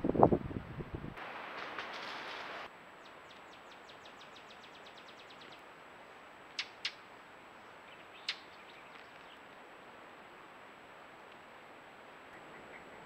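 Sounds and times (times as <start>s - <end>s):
bird whistling song: 7.9s - 9.4s.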